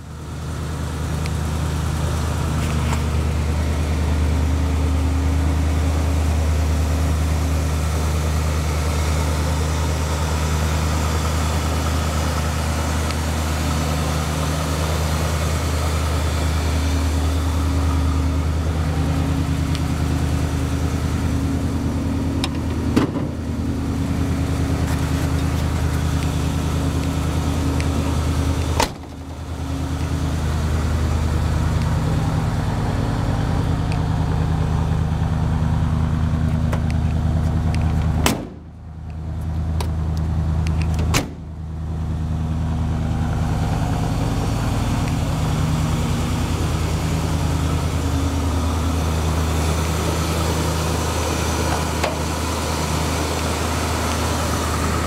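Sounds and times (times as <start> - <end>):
van engine idling: 0.0 - 55.0.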